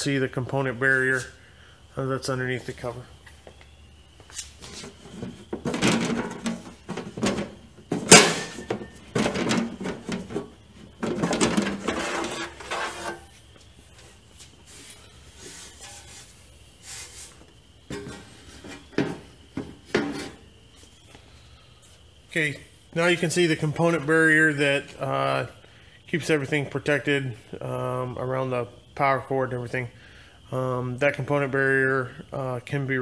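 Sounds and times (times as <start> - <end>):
sheet metal scraping: 4.4 - 13.4, 15.5 - 16.4.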